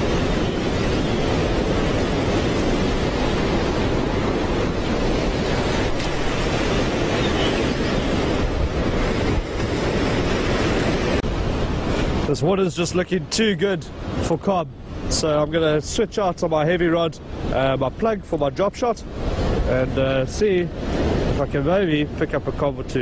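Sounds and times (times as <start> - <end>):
surf breaking over rocks: 0.0 - 12.3
wind buffeting microphone: 0.0 - 12.4, 19.0 - 22.8.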